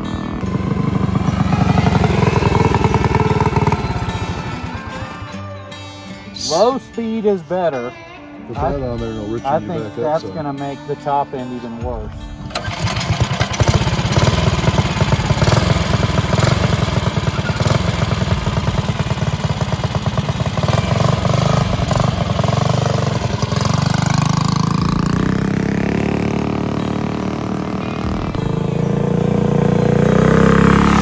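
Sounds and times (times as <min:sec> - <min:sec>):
minibike engine running: 0:00.0 - 0:05.6, 0:12.5 - 0:31.0.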